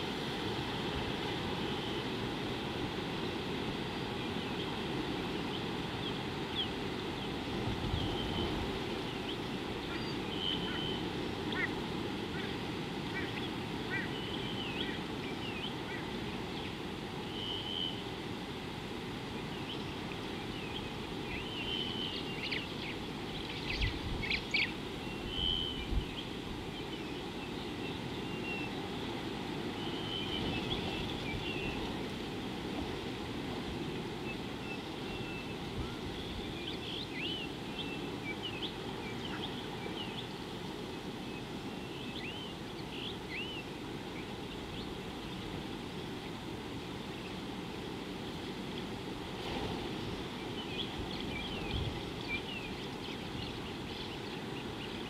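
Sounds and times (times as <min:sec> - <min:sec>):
birds chirping and whistling: 0:09.9 - 0:11.7, 0:20.8 - 0:26.2, 0:29.8 - 0:31.8.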